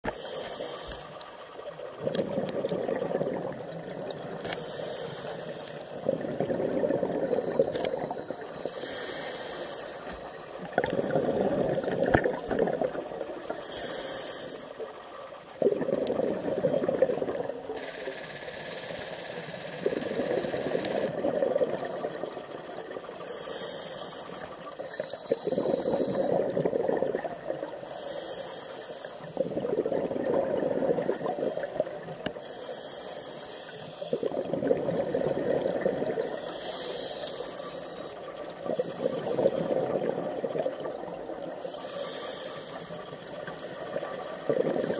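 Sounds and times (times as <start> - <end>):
diver inhaling through regulator: 0.1 - 1.2, 4.4 - 12.0, 13.6 - 14.8, 15.8 - 21.7, 23.2 - 27.0, 27.8 - 29.8, 30.7 - 34.5, 35.8 - 40.1, 41.6 - 43.2
exhaled bubbles underwater: 1.5 - 4.4, 5.7 - 8.8, 10.2 - 13.8, 14.7 - 17.8, 19.8 - 23.4, 24.6 - 28.0, 29.2 - 32.4, 34.0 - 37.1, 38.0 - 42.2, 43.0 - 44.9.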